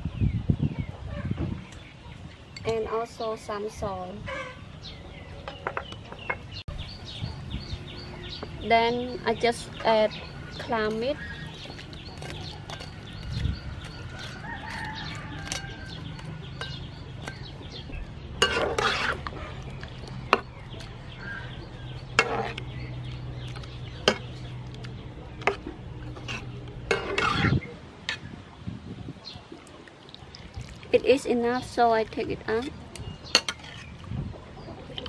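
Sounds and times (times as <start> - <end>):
chickens clucking: 9.2 - 28.4
metal ladle clinking and scraping pan: 18.4 - 20.5, 22.1 - 22.6, 25.4 - 28.2.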